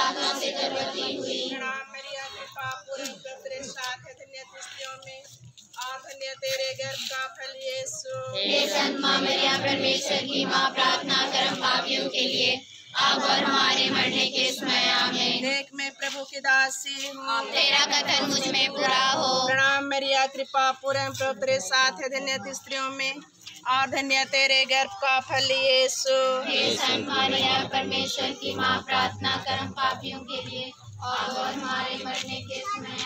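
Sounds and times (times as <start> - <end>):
group singing a hymn: 0.0 - 3.4, 7.6 - 19.8, 26.1 - 33.0.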